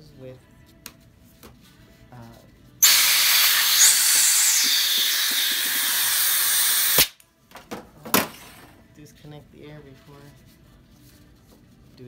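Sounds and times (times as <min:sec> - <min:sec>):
compressed air hissing: 0:02.8 - 0:07.1.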